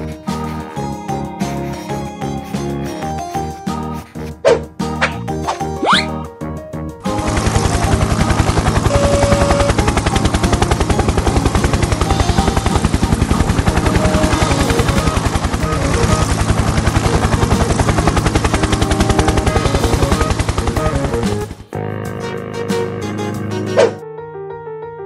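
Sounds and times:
helicopter rotor chopping: 7.0s - 21.7s.

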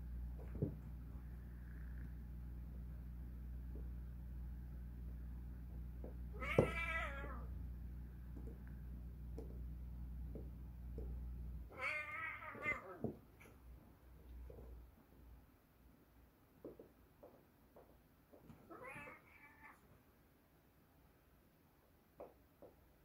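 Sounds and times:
cat yowling: 6.3s - 7.5s, 11.7s - 13.1s, 18.7s - 19.8s.

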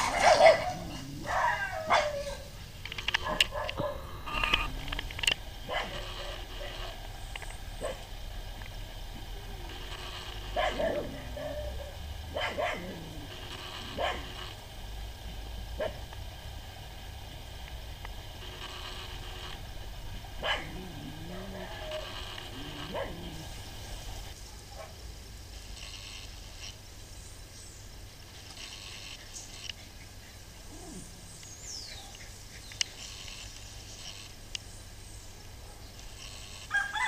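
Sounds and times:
dog barking and yipping: 0.0s - 2.5s, 3.1s - 4.1s, 5.6s - 7.0s, 7.8s - 8.1s, 10.5s - 13.0s, 13.9s - 14.4s, 15.8s - 16.0s, 20.4s - 23.4s.

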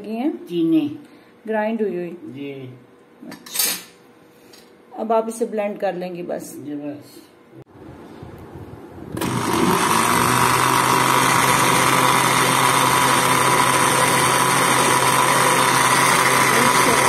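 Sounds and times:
blender motor running: 9.2s - 17.0s.

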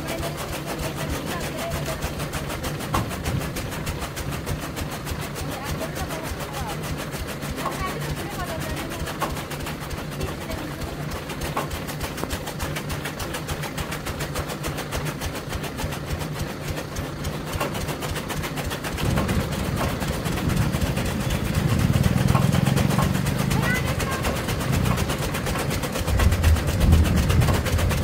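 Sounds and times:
blades chopping in rapid clatter: 0.0s - 28.0s
steady machine hum: 0.0s - 28.0s.

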